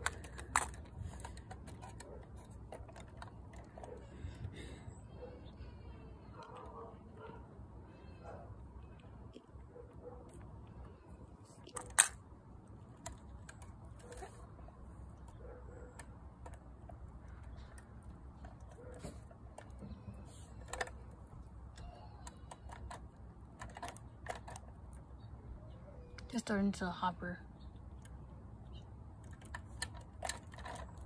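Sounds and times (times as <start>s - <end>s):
light clicks and taps of toys: 0.0s - 4.7s, 11.6s - 25.2s, 27.8s - 31.0s.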